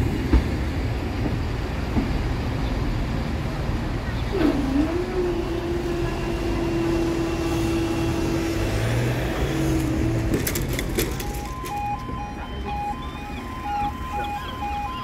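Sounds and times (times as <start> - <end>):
vehicle-like hum: 0.9 - 15.0
level crossing warning beeps: 11.0 - 15.0.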